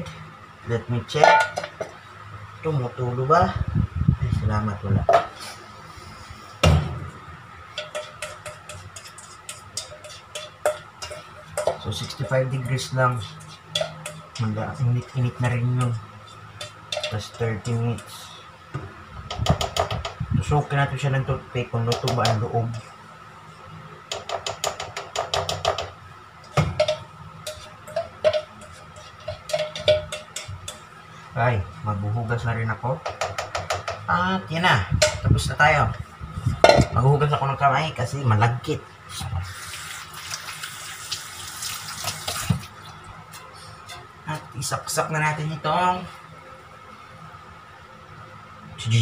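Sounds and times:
metal bowl ringing: 0:01.2 - 0:01.8
spoon tapping metal bowl: 0:01.2 - 0:01.9, 0:07.8 - 0:12.8, 0:13.7 - 0:14.4, 0:16.6 - 0:17.4, 0:24.1 - 0:25.9, 0:26.5 - 0:30.9, 0:33.0 - 0:34.1.

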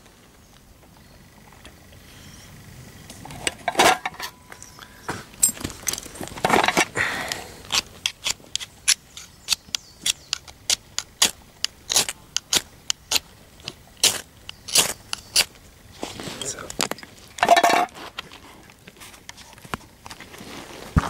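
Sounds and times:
metal striker scraping firesteel rod: 0:07.7 - 0:13.2.

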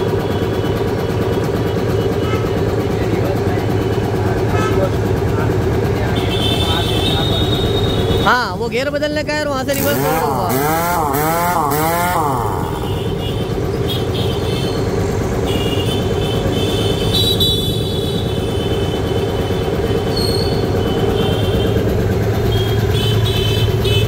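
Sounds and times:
air compressor humming: 0:00.0 - 0:24.0
high whine: 0:09.6 - 0:13.2.

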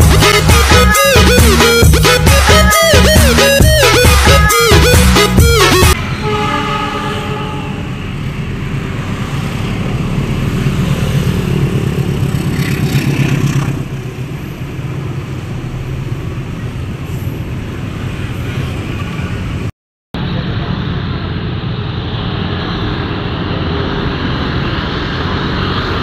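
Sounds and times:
diesel locomotive engine running: 0:00.0 - 0:26.0.

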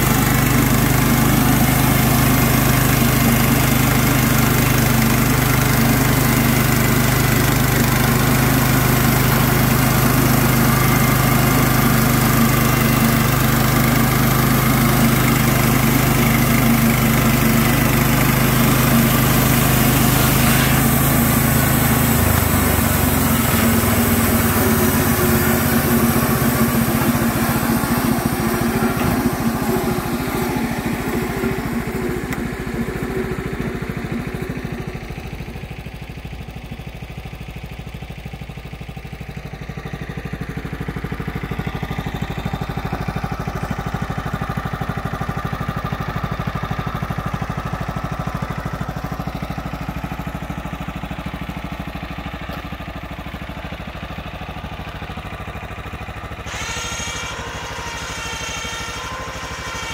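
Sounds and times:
small gasoline engine running: 0:00.0 - 0:59.9
bandsaw sawing wood: 0:08.0 - 0:33.6, 0:56.5 - 0:59.9.

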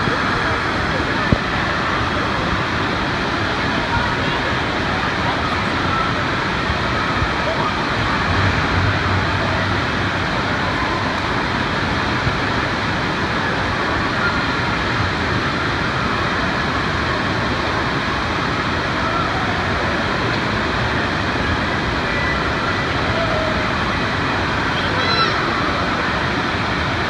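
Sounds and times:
water rushing into splash pool: 0:00.0 - 0:27.0.

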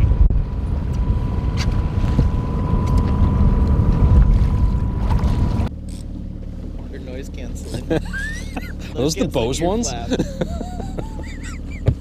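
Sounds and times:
wind buffeting microphone: 0:00.0 - 0:05.7
water splashing: 0:04.0 - 0:05.7.

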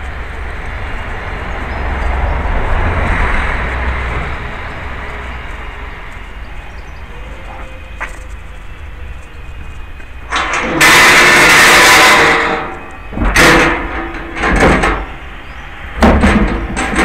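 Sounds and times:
metal doors scraping rattle: 0:10.2 - 0:17.0.

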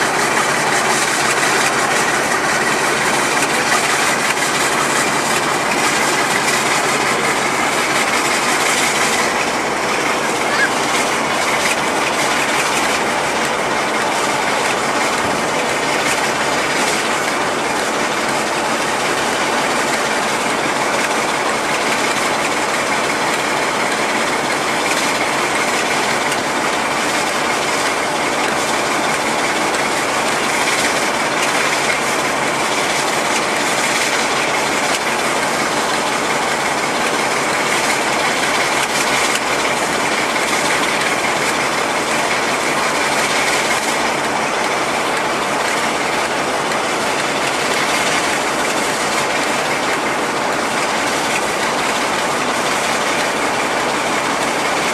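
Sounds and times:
diesel locomotive engine running: 0:00.0 - 0:54.9.

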